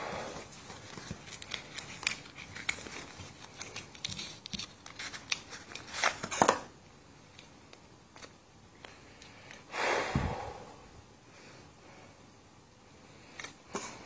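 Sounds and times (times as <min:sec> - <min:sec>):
cellophane wrapper crinkling: 0:00.4 - 0:06.7.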